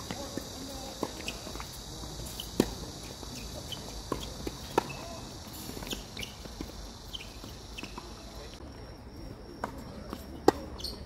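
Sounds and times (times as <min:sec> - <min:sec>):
tennis balls struck by rackets: 0:00.0 - 0:08.6, 0:09.5 - 0:11.0
tennis balls bouncing on hard court: 0:02.3 - 0:08.6.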